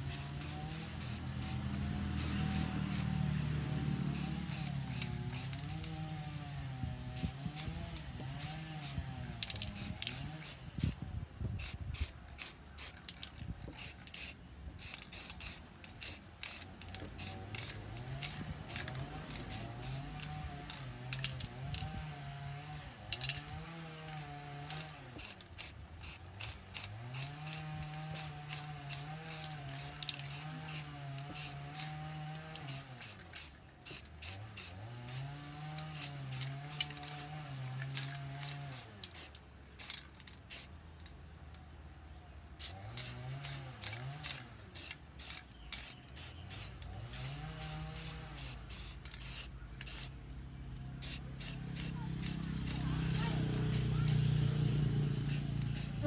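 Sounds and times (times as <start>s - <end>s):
aerosol spray can hissing: 0.0s - 3.4s, 4.1s - 5.8s, 8.4s - 11.0s, 11.6s - 13.1s, 13.8s - 20.3s, 24.7s - 35.2s, 35.8s - 37.3s, 37.9s - 40.7s, 42.6s - 50.2s, 51.0s - 54.3s, 55.2s - 56.0s.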